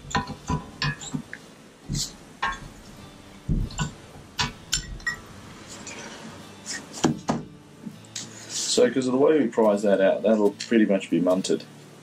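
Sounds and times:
metal clinks and knocks: 0.0s - 1.3s, 2.0s - 2.9s, 3.5s - 5.3s.

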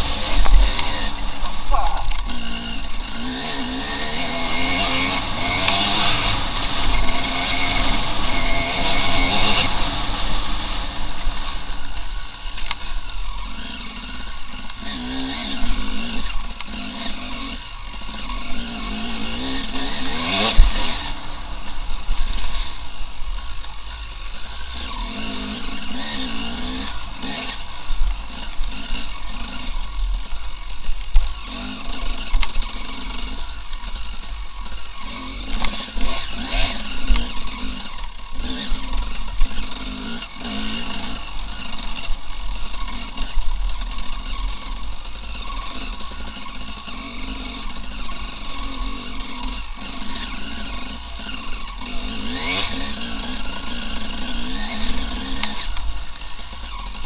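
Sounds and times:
motorcycle engine revving: 0.0s - 57.0s
sharp knock: 1.7s - 2.2s.

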